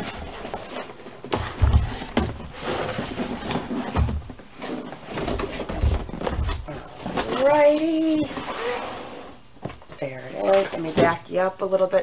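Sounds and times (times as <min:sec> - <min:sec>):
cardboard scraping and rustling: 0:00.0 - 0:09.0.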